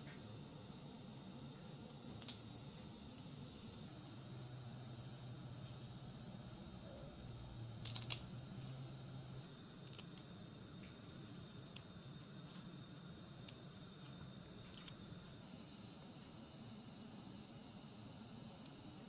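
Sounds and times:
herbs picked with clicks and rustles: 0:07.8 - 0:08.3.

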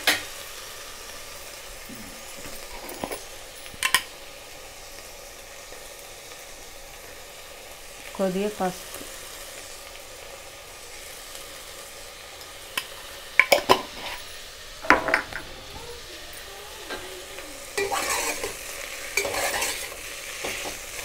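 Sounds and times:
vegetables sizzling in a pot: 0:00.0 - 0:21.0
vegetables tossed in pot scraping: 0:14.8 - 0:21.0.

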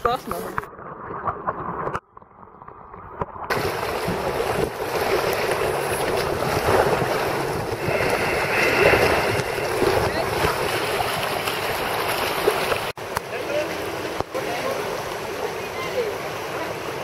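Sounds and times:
muffled water underwater: 0:00.0 - 0:13.0
wind buffeting microphone: 0:03.5 - 0:13.0
rushing river water: 0:03.5 - 0:17.0.

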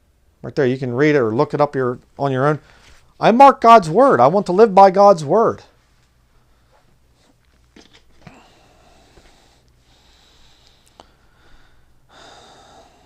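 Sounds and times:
breath through the nose: 0:08.2 - 0:13.0.

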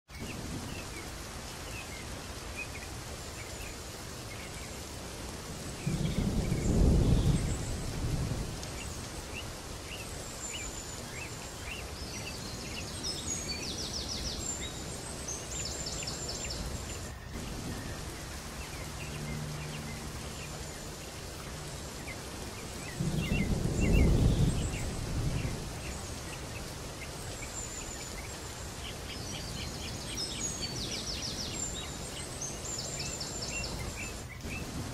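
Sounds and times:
birds chirping: 0:00.1 - 0:34.9
steady rain: 0:00.1 - 0:34.9
low rolls of thunder: 0:00.2 - 0:01.0, 0:05.7 - 0:09.2, 0:22.8 - 0:27.2.

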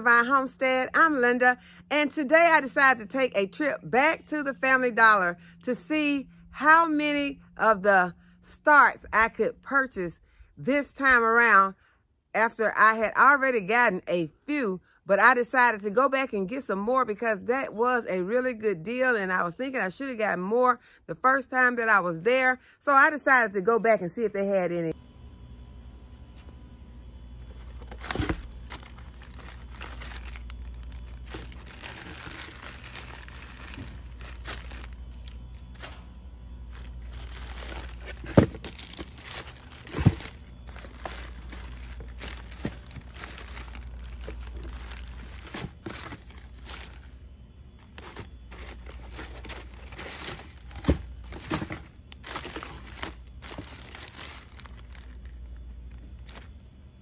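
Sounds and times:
plastic bags crinkling: 0:27.5 - 0:35.9, 0:36.7 - 0:47.2, 0:47.8 - 0:56.6.

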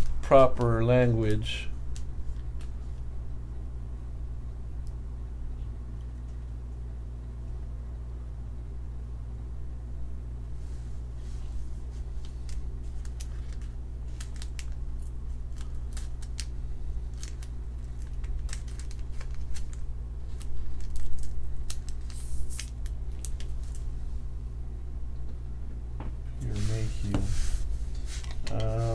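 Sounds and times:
steady low hum: 0:00.0 - 0:28.9
plastic card sleeve crinkling: 0:11.9 - 0:23.9.

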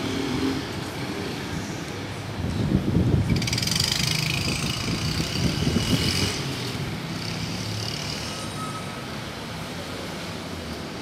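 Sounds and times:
cars passing: 0:00.0 - 0:11.0.

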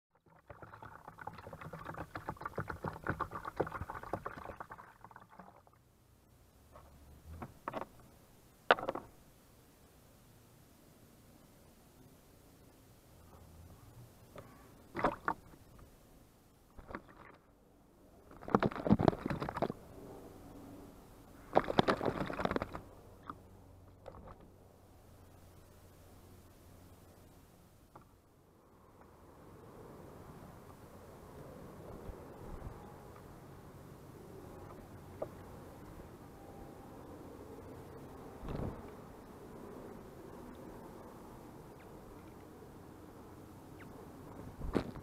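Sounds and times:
water splashing into bird bath: 0:00.2 - 0:05.8, 0:14.9 - 0:15.6, 0:21.6 - 0:22.8.

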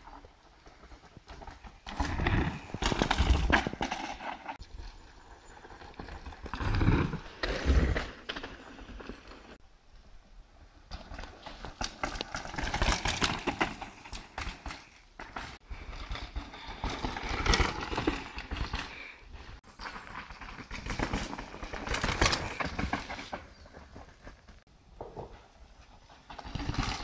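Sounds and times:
bike tyres scrabbling on dirt: 0:00.0 - 0:27.0
bike frames and chains rattling: 0:11.0 - 0:19.1, 0:19.7 - 0:24.4.

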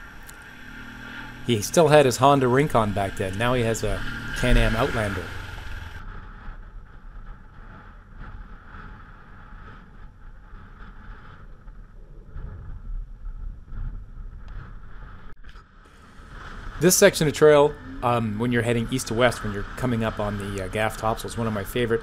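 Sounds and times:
atv engine running: 0:00.0 - 0:06.5, 0:15.9 - 0:22.0
wind buffeting microphone: 0:00.0 - 0:22.0.

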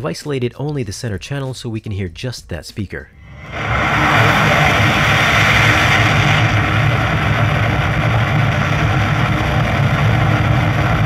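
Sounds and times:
rocket engines roaring: 0:03.2 - 0:11.0.

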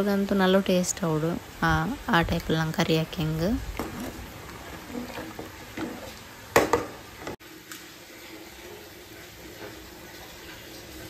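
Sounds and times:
water boiling and bubbling: 0:00.0 - 0:11.0
spatula stirring water in pot: 0:01.7 - 0:11.0
spatula knocking against pot: 0:05.0 - 0:07.4.

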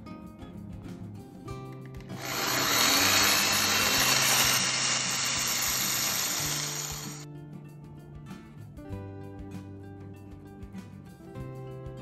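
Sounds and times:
electric drill boring into steel: 0:02.2 - 0:07.2.

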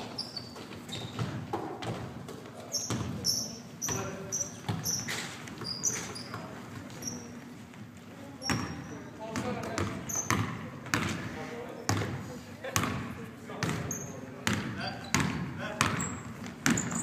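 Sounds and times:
sneaker squeaks on gym floor: 0:00.0 - 0:07.4, 0:08.4 - 0:12.2, 0:13.6 - 0:17.0
basketball bouncing: 0:01.0 - 0:05.0, 0:08.4 - 0:11.2, 0:12.8 - 0:17.0.

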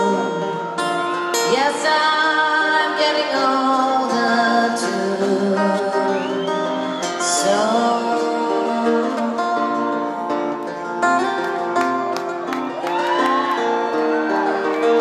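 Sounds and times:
fingerpicked acoustic guitar: 0:00.0 - 0:12.8
high wavering whistle: 0:06.0 - 0:07.4.

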